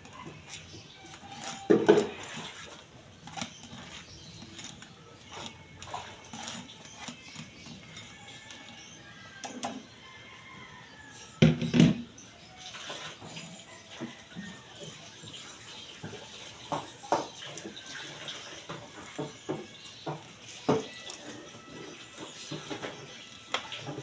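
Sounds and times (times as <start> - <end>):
colander and cookware clattering: 0.0 - 8.8.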